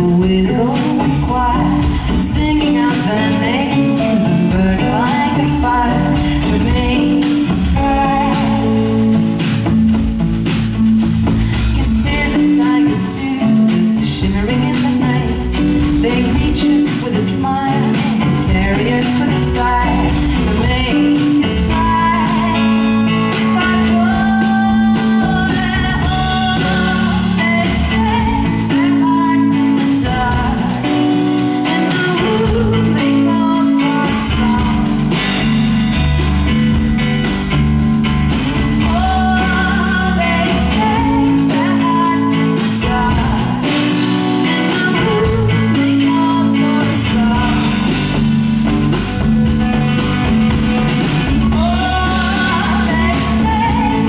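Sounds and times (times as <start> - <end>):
woman singing into microphone: 0.0 - 9.6, 11.4 - 35.6, 38.6 - 48.3, 51.1 - 54.0
drum kit: 0.0 - 54.0
electric guitar: 0.0 - 54.0.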